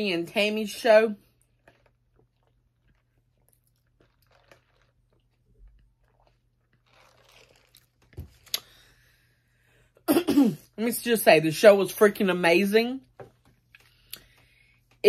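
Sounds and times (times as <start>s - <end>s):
sipping through a straw: 1.4s - 8.9s.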